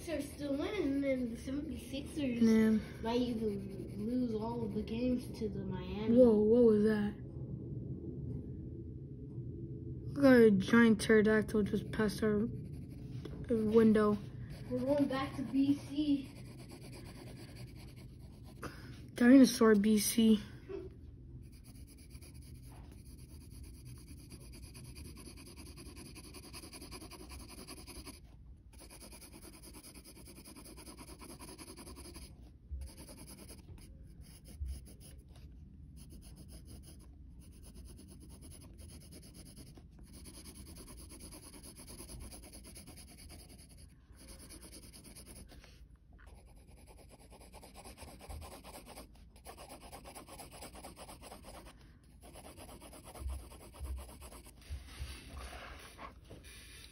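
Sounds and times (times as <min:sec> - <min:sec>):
pencil shading on paper: 0:03.0 - 0:05.2, 0:12.0 - 0:18.6, 0:21.4 - 0:56.9.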